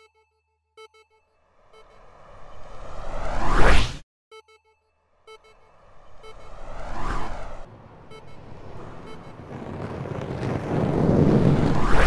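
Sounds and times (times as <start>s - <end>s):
short electronic beeps: 0.0s - 2.8s, 4.3s - 7.4s, 8.1s - 9.4s
rushing whoosh: 2.7s - 4.0s, 6.5s - 7.7s, 9.5s - 12.0s
low rumbling rush: 6.0s - 12.0s.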